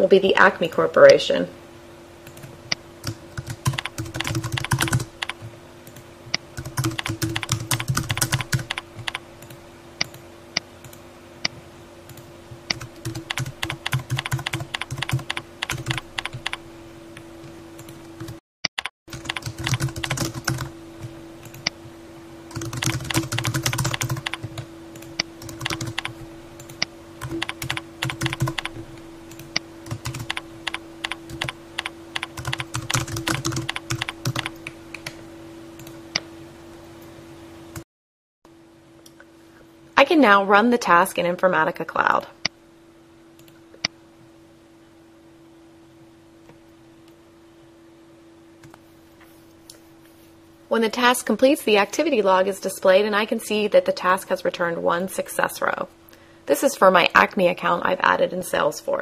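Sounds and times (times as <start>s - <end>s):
steady low hum: 0.0s - 18.4s, 19.1s - 37.8s, 38.5s - 59.0s
computer keyboard typing: 2.2s - 10.2s, 12.1s - 16.6s, 17.8s - 21.7s, 22.5s - 35.2s.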